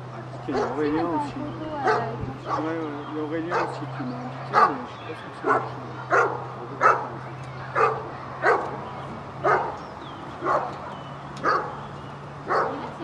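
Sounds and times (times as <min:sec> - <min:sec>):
dog barking deeply: 0:00.4 - 0:01.0, 0:01.8 - 0:02.8, 0:03.4 - 0:08.8, 0:09.4 - 0:09.8, 0:10.4 - 0:10.8, 0:11.4 - 0:11.8, 0:12.4 - 0:13.0.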